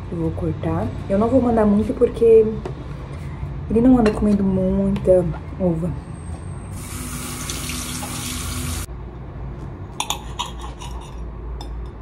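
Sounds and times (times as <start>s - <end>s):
kitchen tap running: 6.8s - 8.9s.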